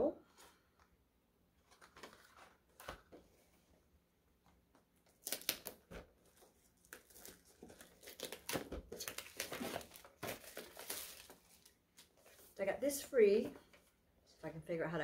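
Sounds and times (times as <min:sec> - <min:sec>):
cardboard packaging crinkling and tearing: 0:05.1 - 0:12.6.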